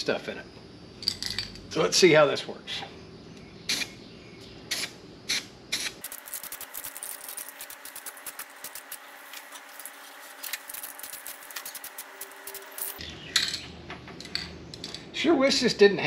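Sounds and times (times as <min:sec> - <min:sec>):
aerosol can spraying: 0:04.7 - 0:13.0.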